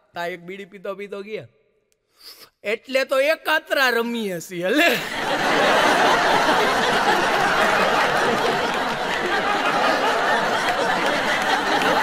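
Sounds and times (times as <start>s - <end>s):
audience laughing: 4.9s - 12.0s
audience clapping: 5.2s - 12.0s.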